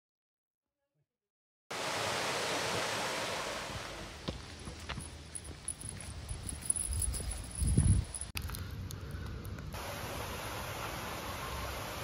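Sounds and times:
small waterfall rushing: 0:01.7 - 0:04.4, 0:09.8 - 0:12.0.

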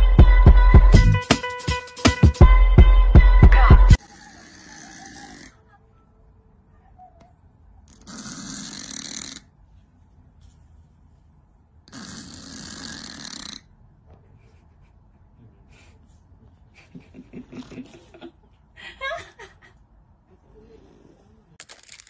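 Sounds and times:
cat snoring: 0:04.0 - 0:05.6, 0:07.9 - 0:09.5, 0:11.9 - 0:13.7, 0:20.4 - 0:21.6
snuffling breaths: 0:20.3 - 0:21.6.

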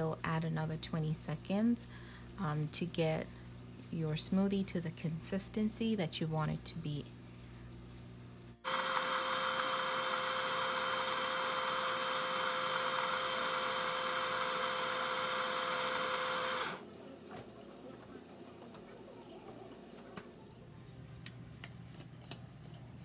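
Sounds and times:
blender motor whining: 0:08.6 - 0:16.8.

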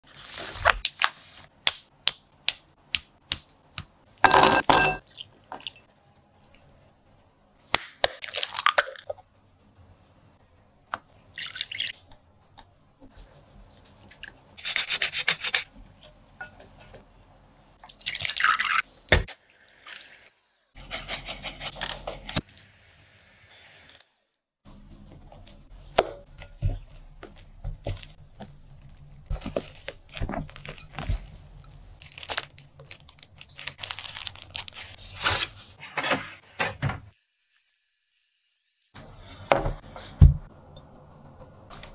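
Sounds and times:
food handling noise: 0:25.0 - 0:36.7.

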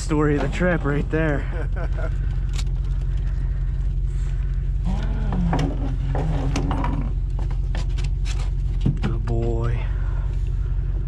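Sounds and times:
truck engine idling: 0:00.0 - 0:11.0
short low voice: 0:04.8 - 0:06.6.

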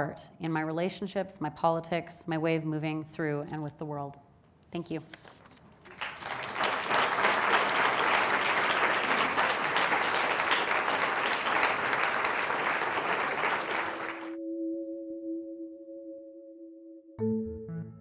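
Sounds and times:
audience applauding: 0:05.8 - 0:14.4.

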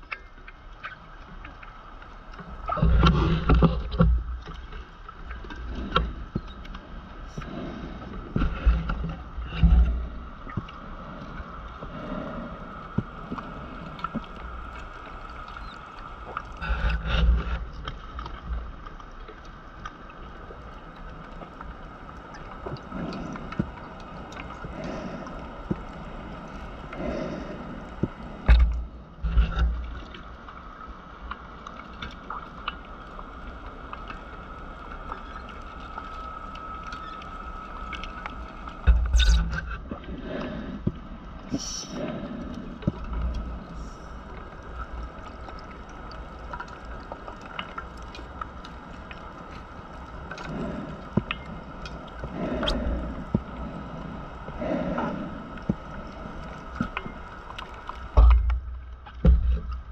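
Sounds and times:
faint high hum: 0:00.0 - 0:59.9
soft underwater breaths: 0:01.6 - 0:58.4
diver exhaling gurgling bubbles: 0:50.4 - 0:57.2.

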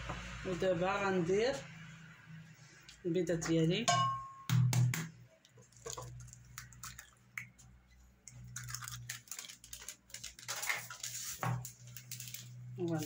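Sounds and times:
egg cracking clicks: 0:05.4 - 0:10.9.

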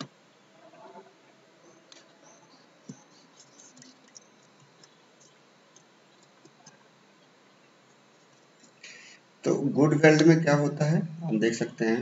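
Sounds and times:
computer mouse clicks: 0:02.9 - 0:06.8.

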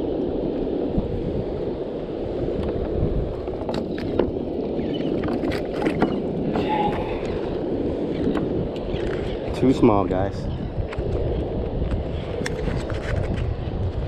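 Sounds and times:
wind rumble on microphone: 0:00.0 - 0:14.0
water lapping against hull: 0:02.7 - 0:09.4.

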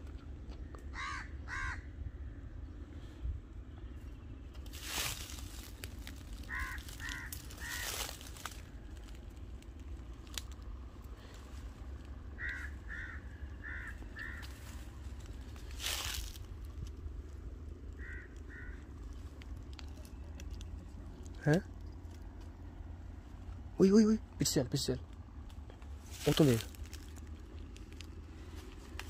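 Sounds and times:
low wind rumble: 0:00.0 - 0:29.0
crow cawing: 0:00.8 - 0:02.0, 0:04.8 - 0:09.2, 0:10.4 - 0:20.2.

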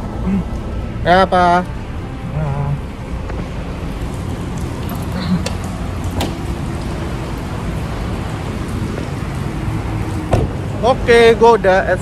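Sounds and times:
car door clicks: 0:04.9 - 0:06.5, 0:10.3 - 0:10.6.

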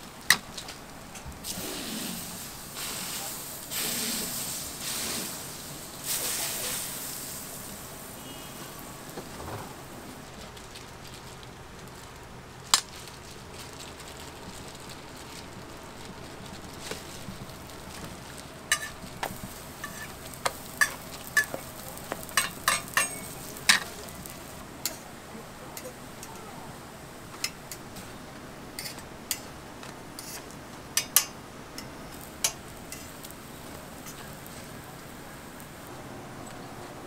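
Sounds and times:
pancakes sizzling on griddle: 0:01.4 - 0:29.5, 0:30.2 - 0:35.9
metal tongs tapping and scraping: 0:18.7 - 0:19.0, 0:19.8 - 0:23.9.

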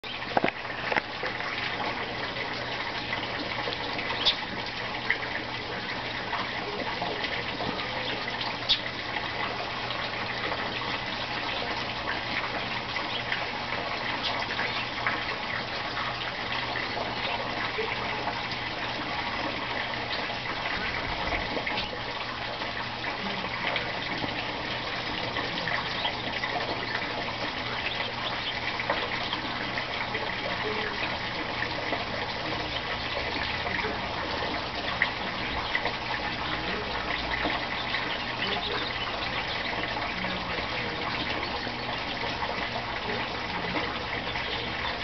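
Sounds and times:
rushing water-like noise: 0:00.0 - 0:45.0.

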